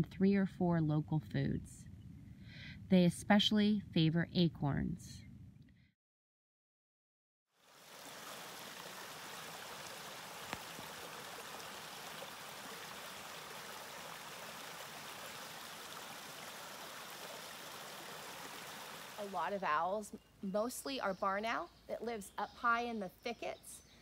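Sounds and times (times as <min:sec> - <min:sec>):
creek running over rocks: 0:07.6 - 0:19.9.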